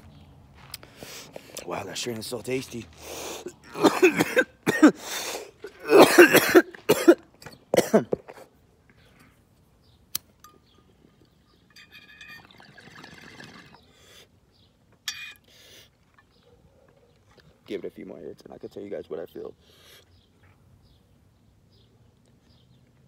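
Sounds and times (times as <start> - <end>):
man coughing hard: 3.6 - 8.2.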